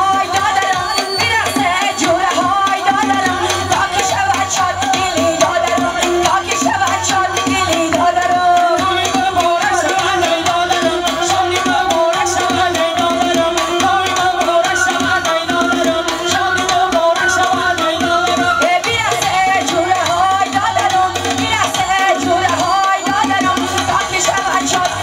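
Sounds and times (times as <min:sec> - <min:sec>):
woman singing: 0:00.0 - 0:25.0
frame drum beat: 0:03.0 - 0:22.4.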